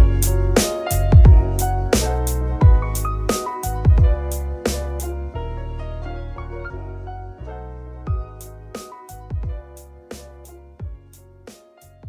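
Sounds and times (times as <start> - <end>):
kick drum: 0.0 - 0.2, 1.1 - 1.6, 2.6 - 2.9, 3.8 - 4.3, 8.1 - 8.4, 9.3 - 9.7, 10.8 - 11.1
snare and cymbal hits: 0.0 - 1.0, 2.0 - 2.4, 3.3 - 3.7.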